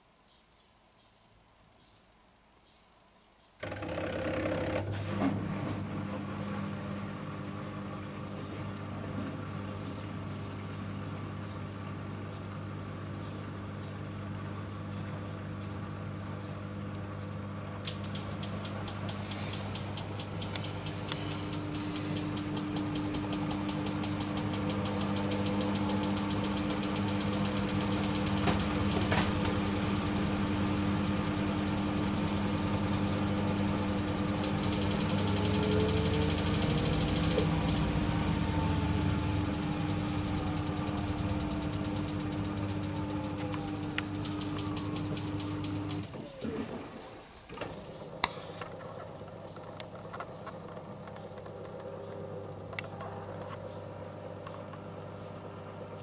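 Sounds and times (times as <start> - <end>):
washing machine spinning: 17.8 - 56.0
fast even ticking: 18.0 - 30.6, 32.3 - 46.0
motor whine: 18.0 - 56.0.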